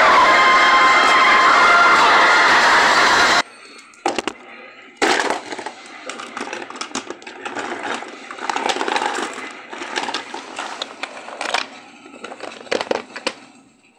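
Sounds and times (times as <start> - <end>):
toys clattering on wooden table: 4.0 - 4.4, 5.0 - 13.4.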